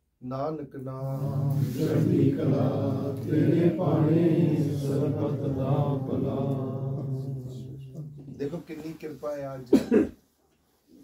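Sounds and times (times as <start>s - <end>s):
voices chanting: 1.0s - 8.6s.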